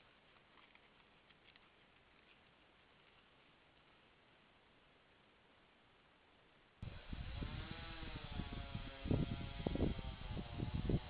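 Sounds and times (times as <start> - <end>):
faint steady hiss: 0.0 - 6.8.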